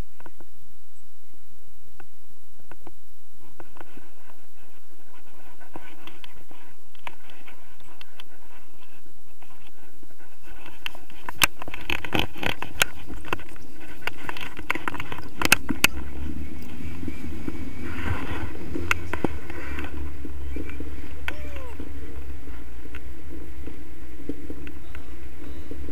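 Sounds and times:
wind rumble on microphone: 0.0 - 25.9
harness straps scraping and rustling: 3.5 - 21.3.

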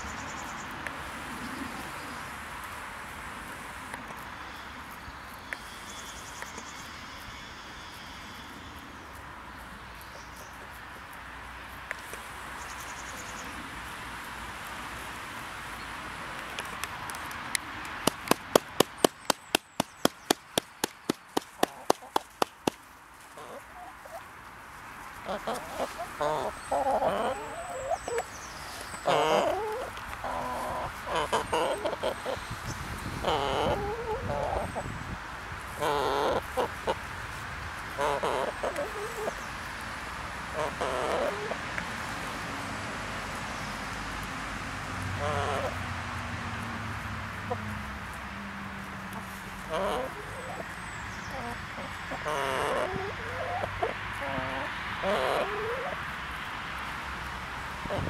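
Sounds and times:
hens clucking: 20.3 - 24.2, 25.2 - 32.5, 33.1 - 34.9, 35.8 - 37.1, 37.9 - 39.4, 40.5 - 41.8, 45.2 - 45.8, 47.4 - 47.8, 49.1 - 56.1.

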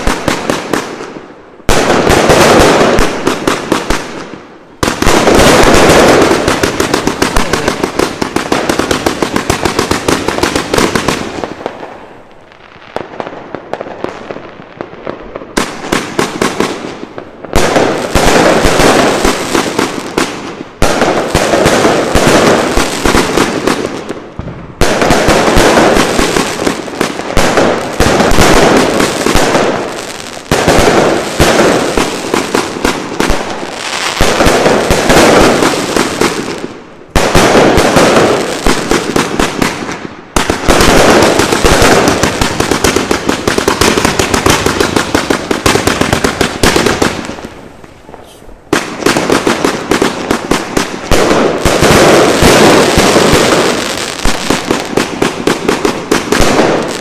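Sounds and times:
firework cake firing volleys: 15.6 - 57.0.

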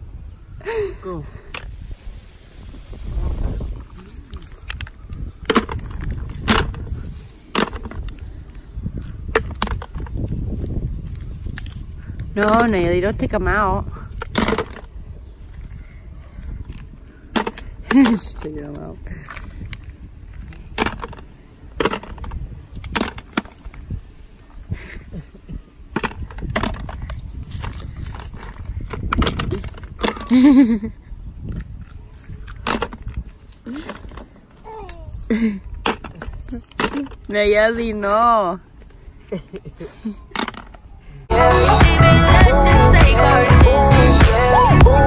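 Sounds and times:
walnuts dropping into plastic bucket: 4.6 - 6.8, 14.2 - 14.9.

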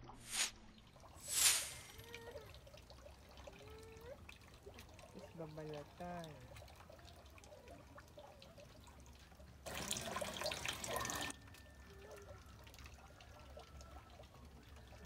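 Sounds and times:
water splashing and running: 0.0 - 11.4.

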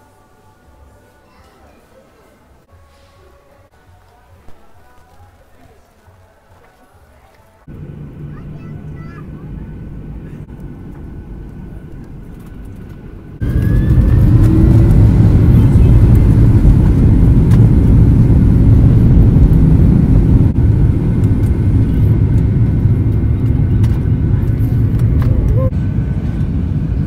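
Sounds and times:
cabin hum: 7.7 - 25.8
jet engines roaring at takeoff: 7.7 - 27.0.

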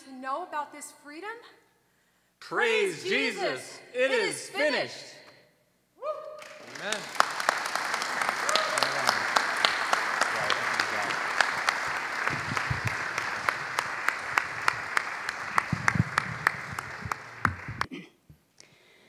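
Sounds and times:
congregation applauding: 6.3 - 17.9.

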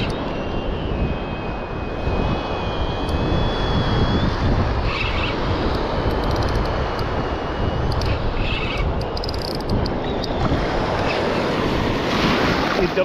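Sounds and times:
fishing reel cranking: 0.0 - 11.3
thin high whine: 0.0 - 13.0
wind on microphone: 0.0 - 13.0
surf: 10.4 - 13.0.

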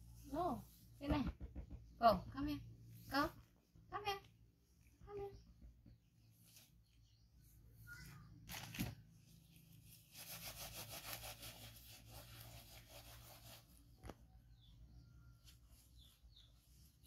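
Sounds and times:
diaper rustling and rasping: 8.4 - 14.0.

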